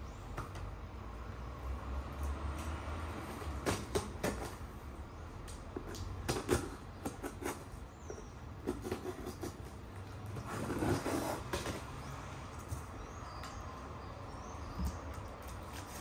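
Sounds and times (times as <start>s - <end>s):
box cutter scraping cardboard: 6.3s - 12.0s.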